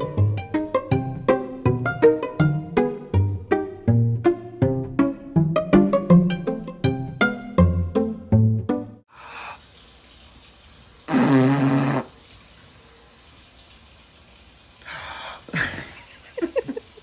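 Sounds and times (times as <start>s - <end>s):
plucked string music: 0.0s - 9.0s.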